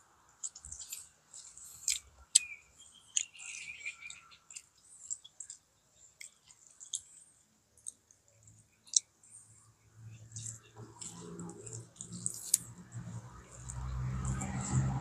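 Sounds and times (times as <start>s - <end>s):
chewing: 0.4s - 15.0s.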